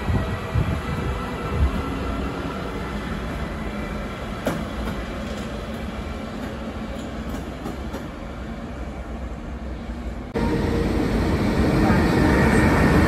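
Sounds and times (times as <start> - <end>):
train wheels rumbling on rails: 0.0 - 13.0.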